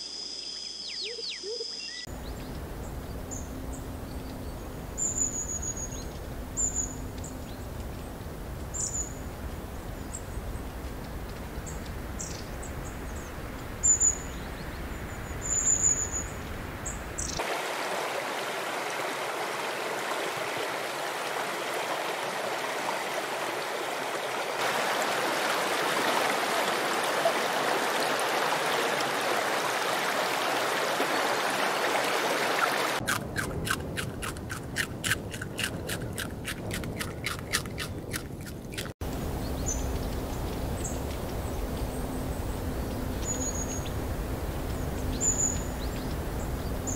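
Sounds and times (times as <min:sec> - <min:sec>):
bird chirps: 0:00.0 - 0:02.6
stream flowing: 0:02.0 - 0:46.9.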